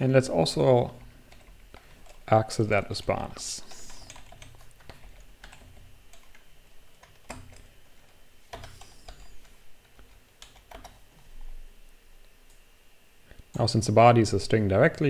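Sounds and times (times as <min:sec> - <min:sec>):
keyboard typing: 0:00.9 - 0:02.3, 0:03.7 - 0:11.0.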